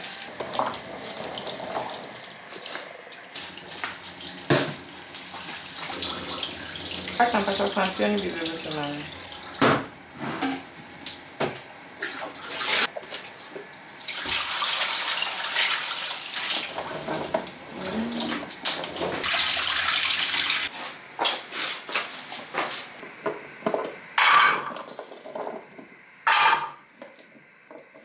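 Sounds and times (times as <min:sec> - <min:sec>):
water running and splashing: 0:00.0 - 0:09.6, 0:19.2 - 0:20.7.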